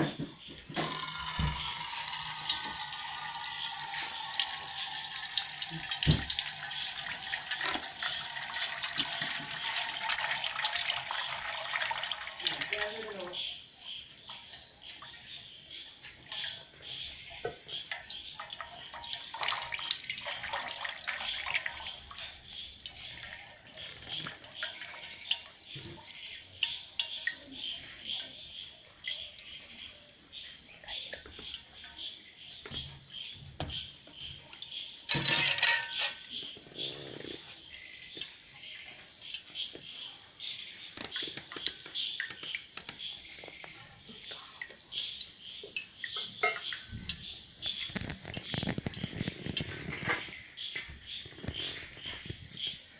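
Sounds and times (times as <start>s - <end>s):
insects chirping: 0.0s - 52.9s
water trickling and splashing: 0.0s - 52.9s
water drips: 0.1s - 52.9s
high insect trill: 0.5s - 15.1s.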